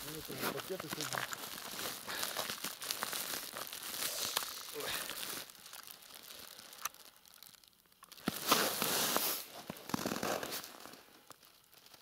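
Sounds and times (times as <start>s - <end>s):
cloth sack rustling: 8.2s - 10.9s.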